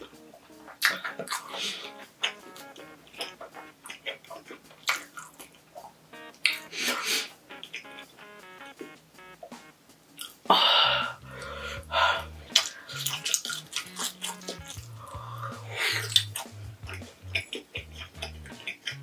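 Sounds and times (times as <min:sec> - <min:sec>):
chewing and lip smacks: 0:00.7 - 0:06.6, 0:12.5 - 0:14.9, 0:16.0 - 0:19.0
loud breathy huffs: 0:10.5 - 0:13.0
background music with bass: 0:10.5 - 0:19.0.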